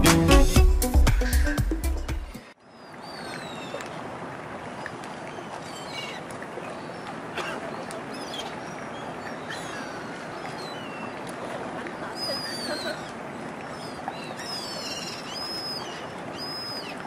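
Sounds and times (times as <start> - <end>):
music: 0.0 - 2.5.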